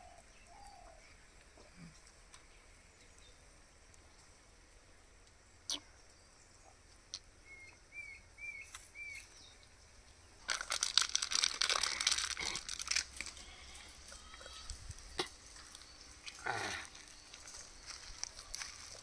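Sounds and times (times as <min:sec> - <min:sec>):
bird chirping: 0:05.7 - 0:10.4
dry leaves crunching: 0:10.4 - 0:14.2, 0:15.4 - 0:19.0.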